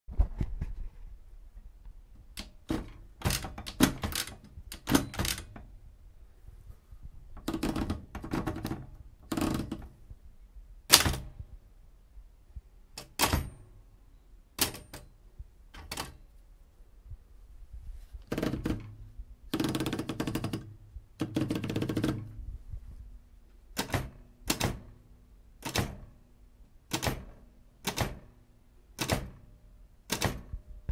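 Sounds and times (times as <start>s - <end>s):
typewriter keys clacking: 2.4s - 5.7s, 7.4s - 9.9s, 14.6s - 15.1s, 15.7s - 16.2s, 18.2s - 18.9s, 19.5s - 22.2s, 23.8s - 24.9s, 26.9s - 28.2s, 29.0s - 29.4s, 30.1s - 30.5s.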